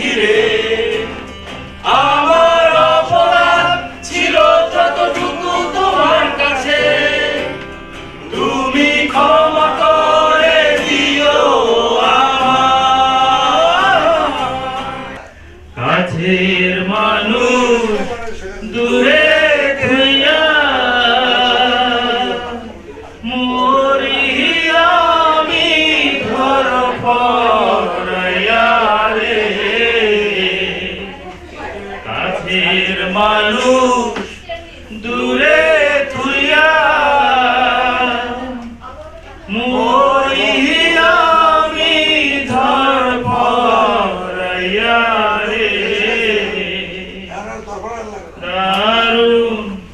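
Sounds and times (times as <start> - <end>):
man singing into microphone: 0.0 - 7.6, 8.3 - 31.2, 32.0 - 38.8, 48.4 - 49.9.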